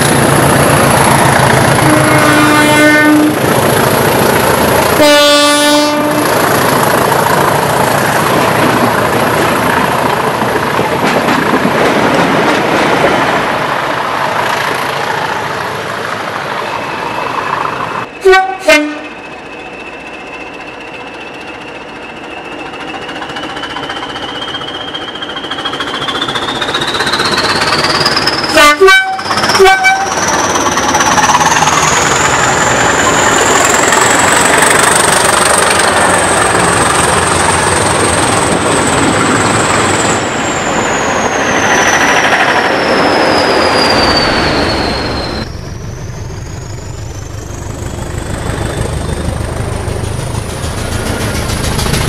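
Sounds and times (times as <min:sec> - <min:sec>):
diesel locomotive passing: 0:00.0 - 0:52.0
train horn blasts: 0:01.8 - 0:03.4, 0:05.0 - 0:06.3, 0:18.2 - 0:19.2, 0:28.5 - 0:30.1
locomotive whine rising in pitch: 0:16.4 - 0:52.0.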